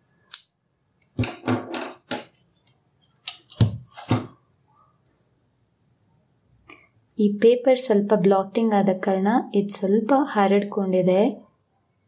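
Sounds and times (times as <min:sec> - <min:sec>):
ruler knocking on desk: 0:01.2 - 0:02.3
paper rustling and clicks: 0:02.0 - 0:04.2.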